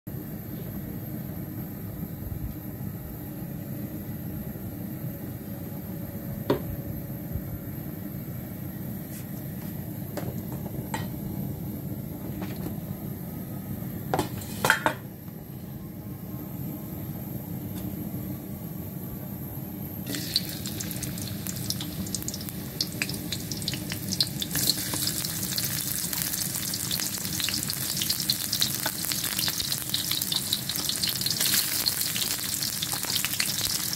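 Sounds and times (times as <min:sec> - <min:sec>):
hot oil sizzling: 0:20.1 - 0:33.9.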